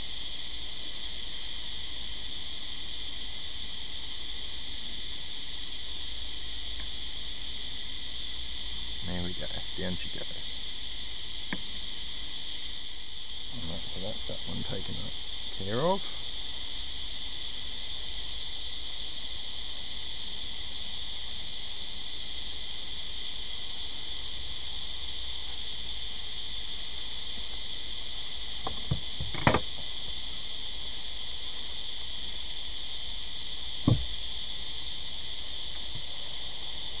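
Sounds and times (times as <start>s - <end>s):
high-pitched insects chorus: 0.0s - 37.0s
wooden box knocks: 28.7s - 29.6s, 33.9s - 34.1s.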